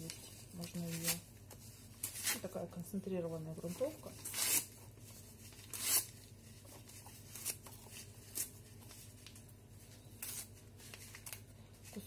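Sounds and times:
paper tearing: 0:04.2 - 0:04.8, 0:05.5 - 0:06.2.

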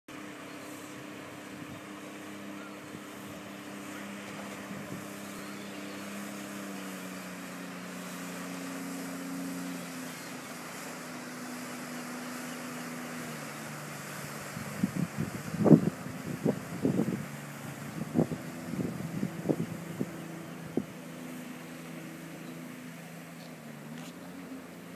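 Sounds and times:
boat engine humming: 0:00.1 - 0:24.9
wind and water noise: 0:00.1 - 0:24.9.

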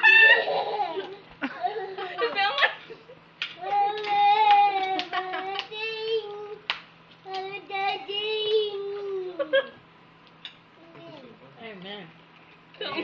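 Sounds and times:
young child singing: 0:03.6 - 0:09.5.

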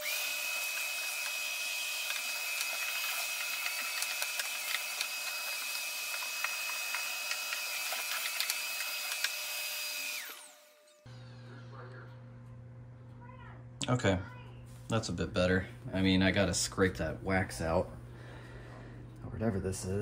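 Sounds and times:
vacuum cleaner running: 0:00.0 - 0:11.9
debris clicking up hose: 0:01.2 - 0:09.6.

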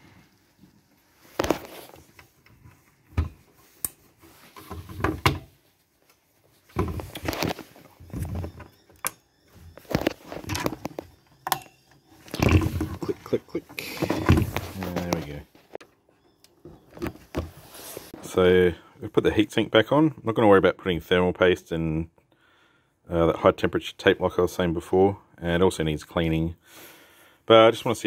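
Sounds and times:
handling rustle: 0:00.0 - 0:08.9, 0:12.2 - 0:15.8.

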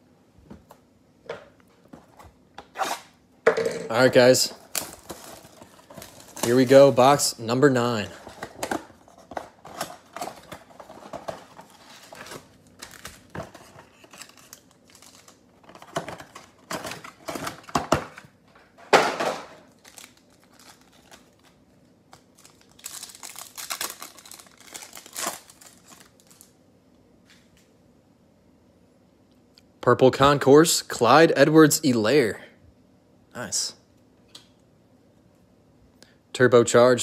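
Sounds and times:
cardboard and foil rustling: 0:03.9 - 0:17.8, 0:19.6 - 0:26.5
foil pack tearing: 0:22.2 - 0:26.5.

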